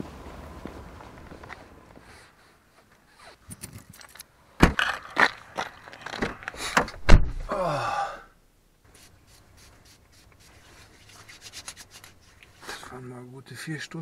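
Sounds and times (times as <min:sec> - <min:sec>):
keys jingling: 0:03.4 - 0:04.3
car door shutting with thump: 0:06.2 - 0:07.5.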